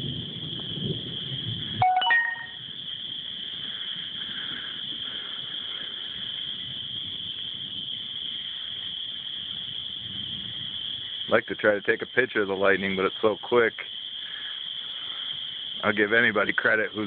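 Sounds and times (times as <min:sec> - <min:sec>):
thunder rumbling: 0:00.0 - 0:01.9
brief chime: 0:01.8 - 0:02.6.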